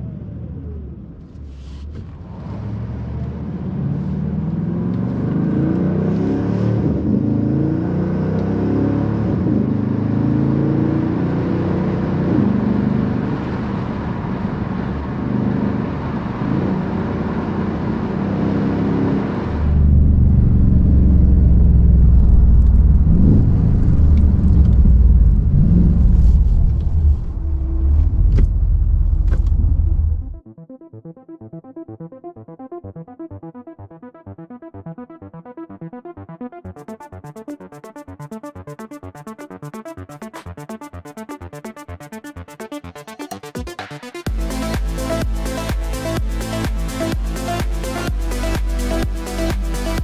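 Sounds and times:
car engine accelerating hard: 0.0s - 30.4s
deep low engine rumble: 19.3s - 30.4s.

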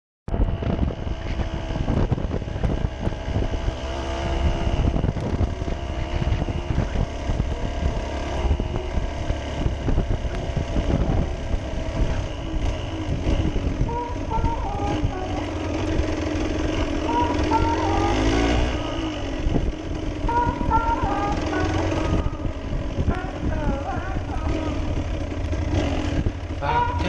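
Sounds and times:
motorcycle engine revving: 0.3s - 27.0s
wind buffeting microphone: 0.3s - 27.0s.

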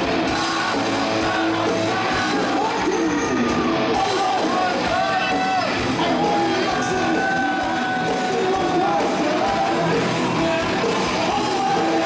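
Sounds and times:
live rock band playing: 0.0s - 12.0s
man singing long held notes: 3.9s - 12.0s.

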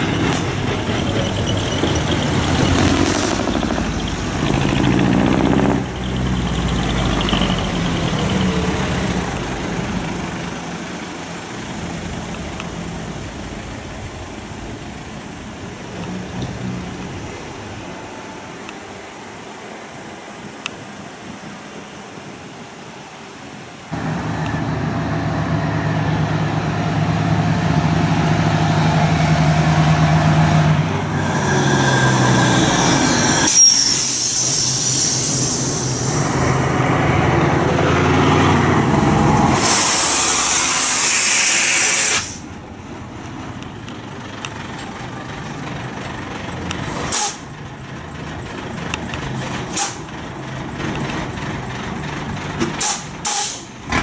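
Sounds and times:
truck diesel engines running: 0.0s - 54.0s
loud air hiss: 31.0s - 36.5s, 39.4s - 42.6s, 47.1s - 47.5s, 49.7s - 50.1s, 52.8s - 53.8s
air brake releases: 31.2s - 36.2s, 39.5s - 42.5s, 46.9s - 47.5s, 49.7s - 50.1s, 52.7s - 53.8s.

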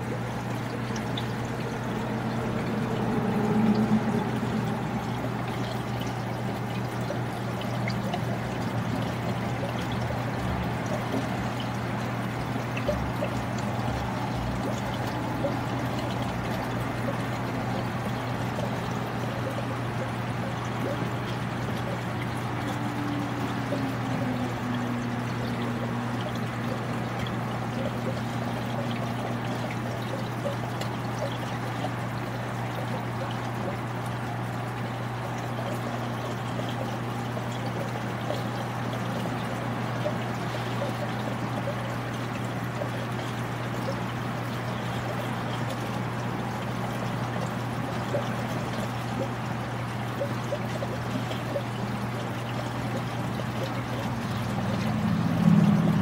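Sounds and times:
low hum: 0.0s - 9.5s
aquarium water trickling: 0.0s - 56.0s.

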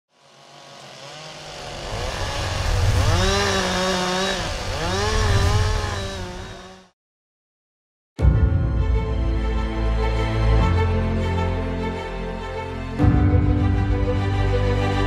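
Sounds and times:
chainsaw engine revving: 0.1s - 7.0s.

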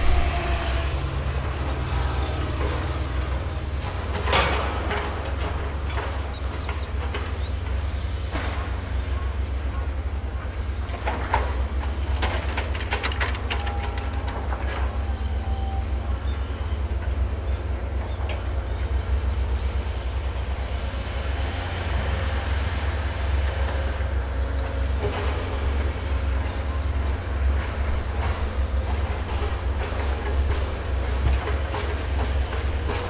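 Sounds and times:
excavator diesel engine rumble: 0.0s - 33.0s.

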